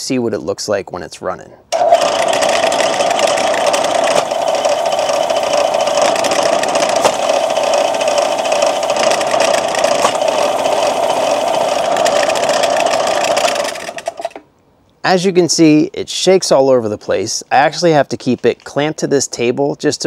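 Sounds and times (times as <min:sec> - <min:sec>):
belt grinder running: 0:01.8 - 0:14.4
machine rattling: 0:01.8 - 0:14.4.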